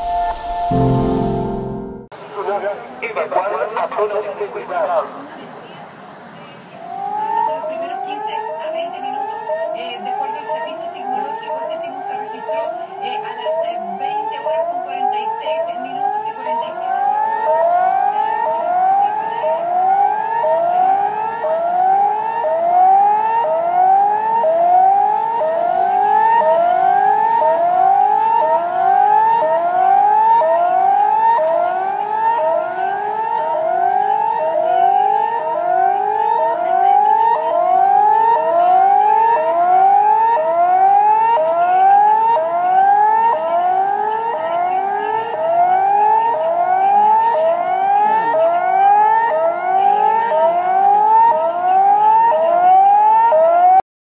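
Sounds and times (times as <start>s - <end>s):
siren rising whoop: 0.0s - 2.1s, 16.0s - 53.8s.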